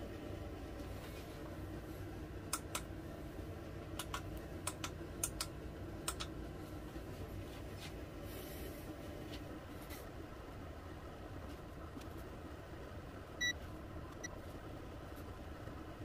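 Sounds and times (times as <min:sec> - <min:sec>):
steady low hum: 0:00.0 - 0:16.0
push buttons clicking: 0:04.0 - 0:06.3.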